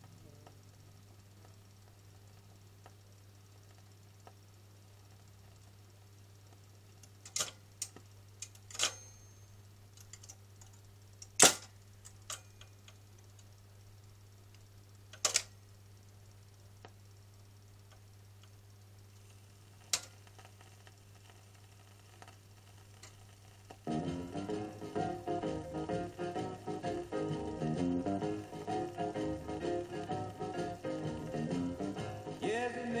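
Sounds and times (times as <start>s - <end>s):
record changer clicks and clunks: 7.0s - 9.3s, 10.0s - 13.0s, 15.1s - 15.6s.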